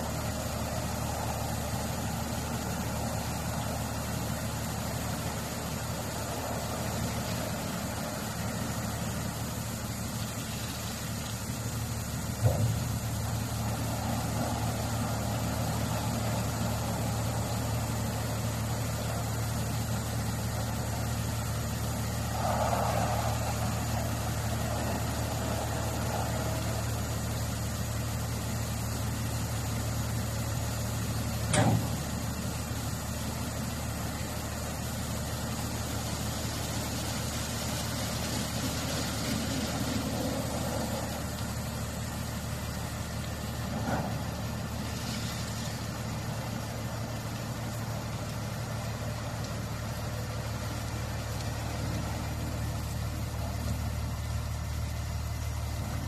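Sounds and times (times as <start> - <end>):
low motor hum: 0.0 - 56.0
water spray hissing: 0.0 - 56.0
sharp clunk: 31.5 - 32.0.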